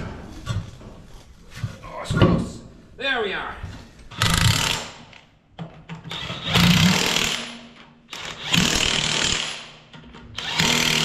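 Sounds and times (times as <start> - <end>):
impact wrench running: 6.1 - 9.8, 10.4 - 11.0.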